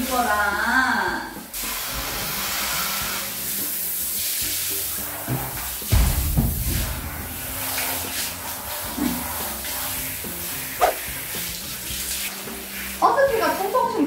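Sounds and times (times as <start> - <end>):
shower head spraying water: 0.0 - 0.7, 1.4 - 14.0
dull bumps: 5.9 - 7.9.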